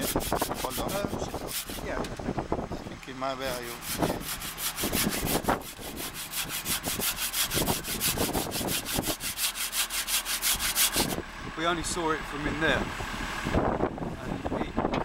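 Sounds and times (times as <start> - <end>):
hand saw cutting stone: 0.0 - 2.0, 3.4 - 11.2.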